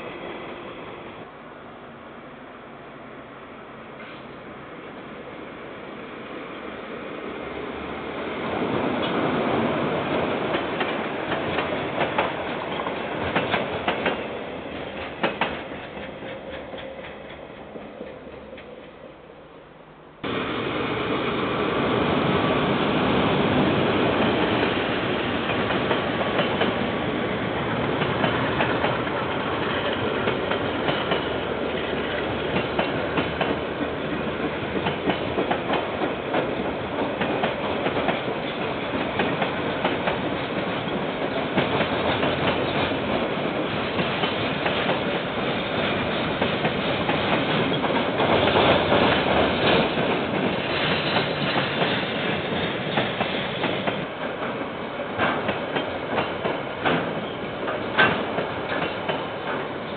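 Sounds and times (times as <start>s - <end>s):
freight train wagons clattering: 27.9s - 59.9s.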